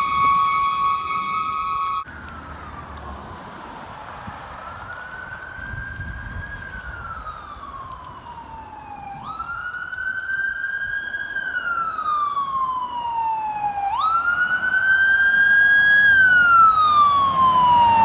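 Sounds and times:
ambulance siren wailing: 0.0 - 18.0.

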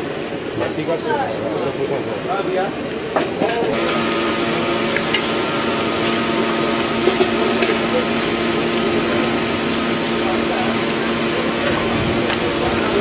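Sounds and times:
machine humming: 3.7 - 13.0
hands mixing fish in metal bowl: 3.8 - 13.0.

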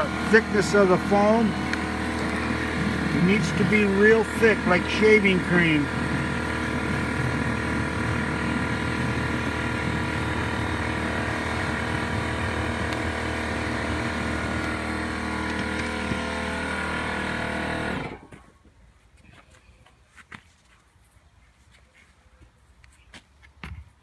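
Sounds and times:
electric paddle mixer running: 0.0 - 18.4.

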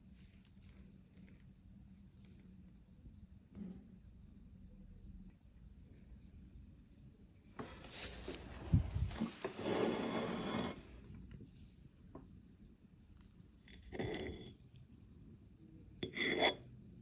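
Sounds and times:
scraping on hard surface: 7.6 - 11.7, 13.7 - 14.7, 16.0 - 16.7.

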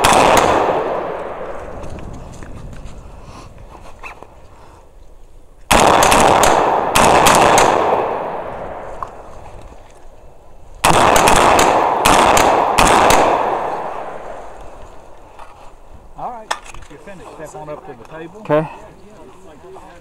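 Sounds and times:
semi-automatic gunfire: 0.0 - 1.5, 5.7 - 8.9, 10.8 - 14.3.

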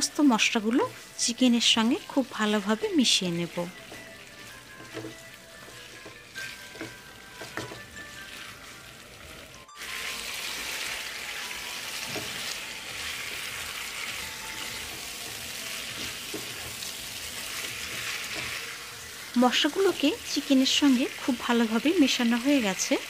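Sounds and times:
chicken sizzling in oil: 0.0 - 23.0
spatula knocking against pan: 3.8 - 8.0.

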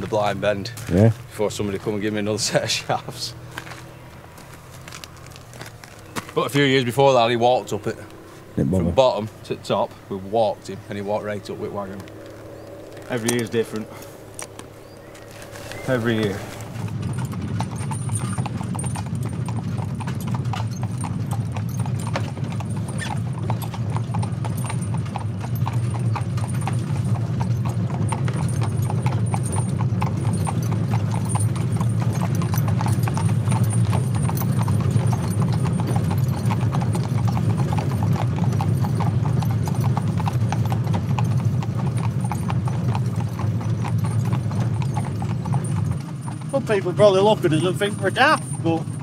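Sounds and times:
hooves clip-clopping on tarmac: 0.0 - 49.0.

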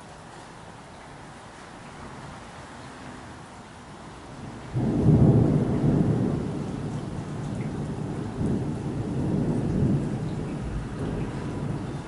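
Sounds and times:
rain falling: 0.0 - 12.0
thunder rumbling: 4.4 - 12.0.

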